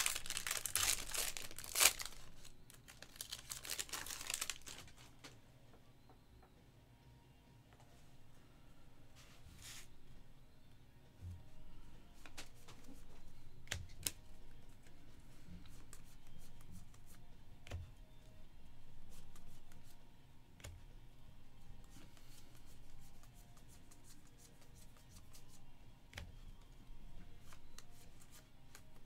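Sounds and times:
cards snapping: 0.0 - 2.3
cards rustling: 0.0 - 5.1.

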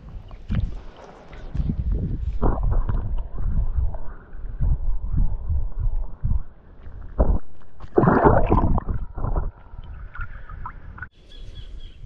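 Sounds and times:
muffled water sloshing underwater: 0.0 - 11.1
low underwater thumps: 1.6 - 6.5, 7.1 - 10.2
water rushing surge: 7.2 - 10.3.

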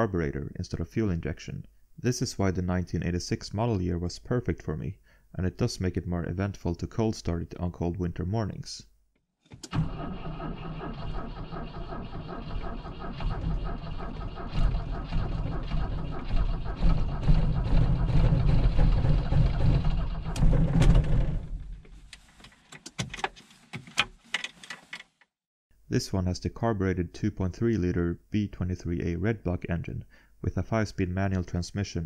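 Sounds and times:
car engine starting and running: 9.5 - 21.9.

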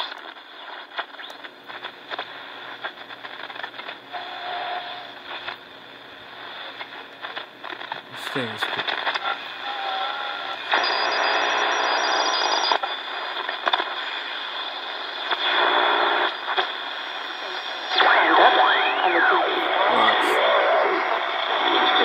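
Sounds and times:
radio crackles: 0.0 - 22.0
radio static and hiss: 0.0 - 22.0
faint radio whistles: 4.1 - 5.4, 9.1 - 22.0.

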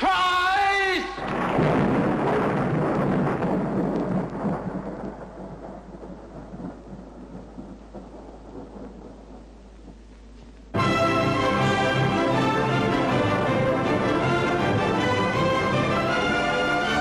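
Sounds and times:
loud rumbling crash: 1.2 - 5.9.

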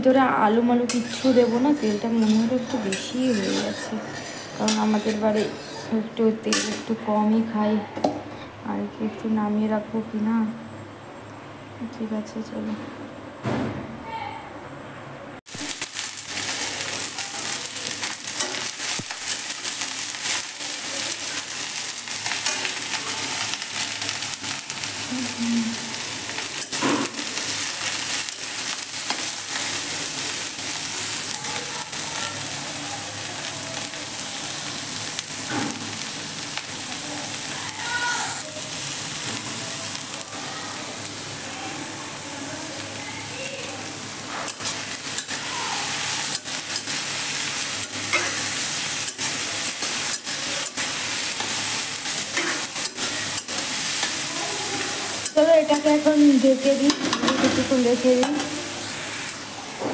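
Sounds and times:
cabbage sizzling in hot oil: 0.0 - 7.5, 15.5 - 59.9
spatula scraping metal pan: 0.8 - 6.8.

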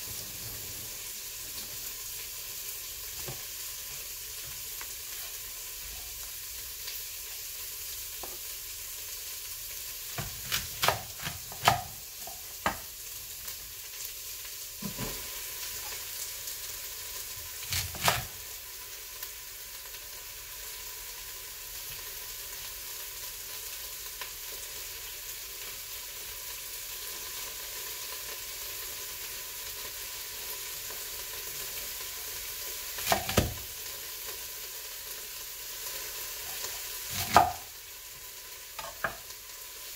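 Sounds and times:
steam hissing from pressure cooker: 0.0 - 21.4
knife chopping on wooden board: 10.2 - 12.0, 12.6 - 12.9, 17.7 - 18.3, 33.0 - 33.6, 37.1 - 37.7.

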